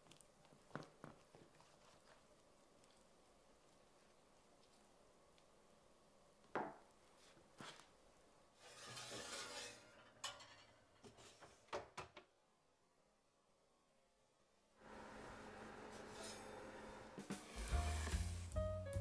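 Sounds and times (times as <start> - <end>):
glass dish scraping on rack: 8.6 - 11.4.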